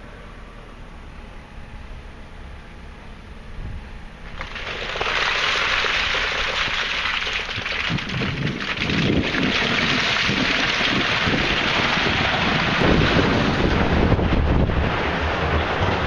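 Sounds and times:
coal pouring and clattering: 4.3s - 14.1s.

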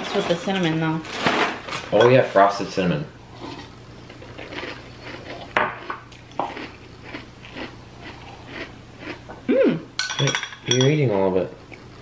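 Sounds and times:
faint low hum: 1.0s - 12.0s
spoons clinking on glass bowls: 10.0s - 11.0s.

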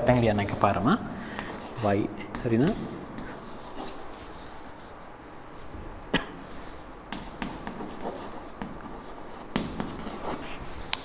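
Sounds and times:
chalk tapping on chalkboard: 1.4s - 4.0s, 7.1s - 10.4s.

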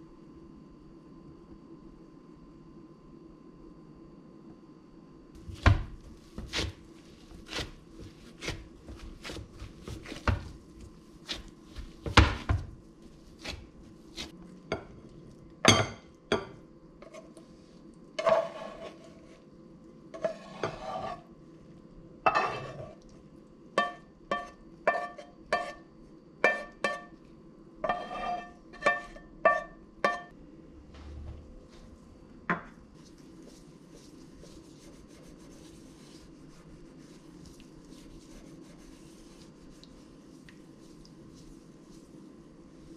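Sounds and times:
spatula tapping and scraping a pan: 23.8s - 25.8s, 26.4s - 27.1s, 27.8s - 30.3s.

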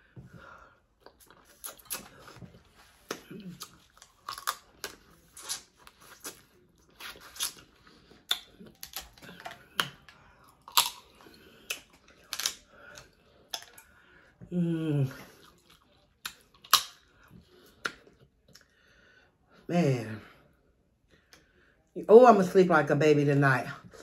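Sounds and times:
crab shells cracking: 3.2s - 5.6s, 8.2s - 13.8s, 16.2s - 17.0s.

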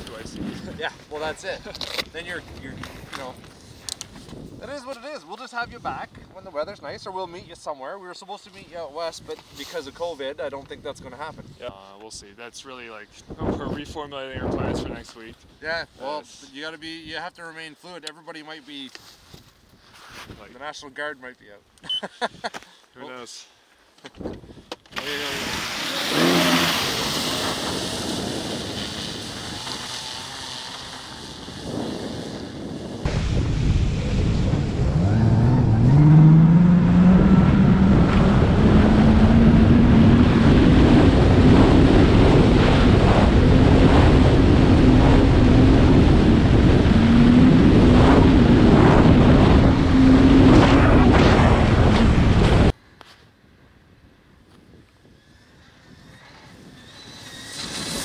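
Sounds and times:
wind buffeting microphone: 0.0s - 7.6s, 13.1s - 15.6s, 25.3s - 52.8s
snowmobile drive hum: 24.9s - 52.8s, 54.9s - 58.0s.

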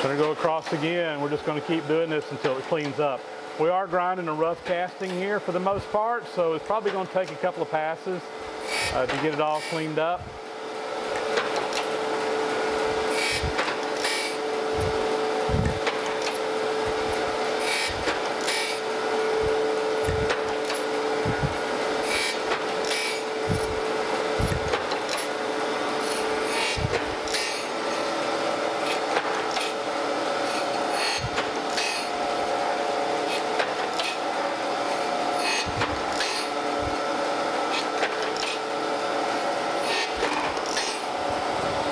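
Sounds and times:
steady motor hum: 0.0s - 41.9s
grinding wheel hissing on metal: 13.1s - 37.0s.

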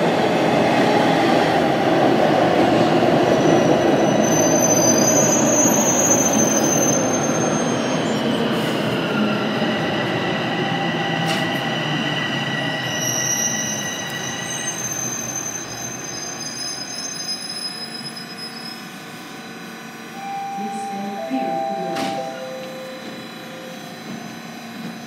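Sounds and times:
subway train rumbling and braking: 0.0s - 25.0s
high-pitched whines: 20.2s - 25.0s.

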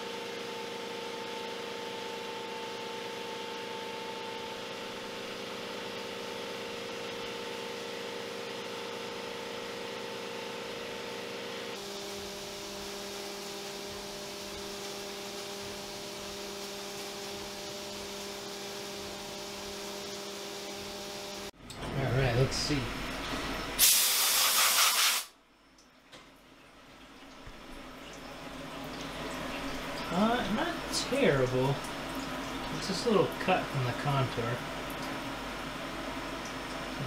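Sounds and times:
milling machine whine: 0.0s - 23.8s, 28.3s - 37.0s
coolant spray hiss: 23.8s - 25.3s.

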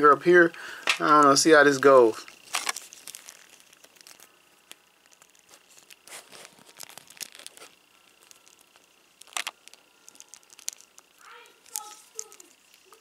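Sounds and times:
plastic parts clicking: 8.2s - 11.0s.

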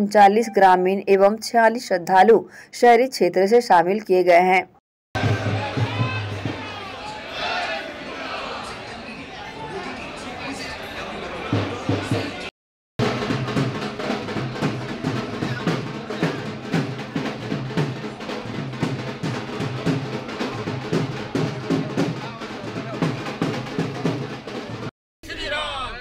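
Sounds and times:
drums beating fast rhythm: 5.2s - 6.9s, 11.5s - 24.9s
music: 5.2s - 7.0s, 13.0s - 24.9s.

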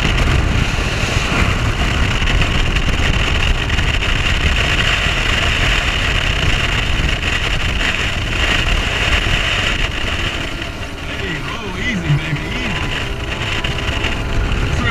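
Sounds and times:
outboard motor rumble: 0.0s - 14.9s
wind and water rushing: 0.0s - 14.9s.

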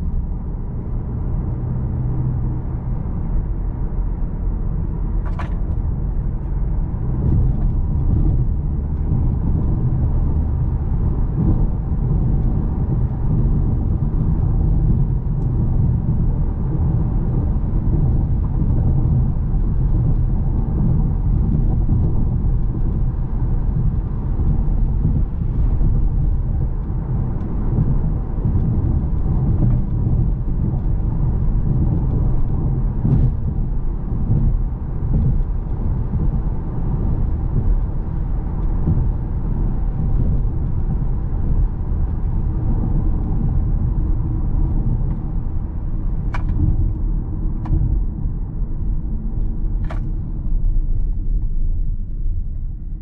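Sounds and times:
engine and tyre rumble: 0.0s - 53.0s.

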